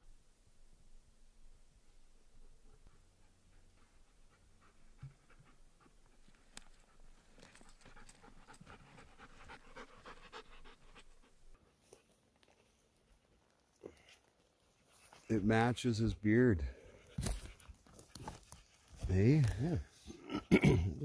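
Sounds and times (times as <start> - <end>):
dog panting: 2.6 - 12.8.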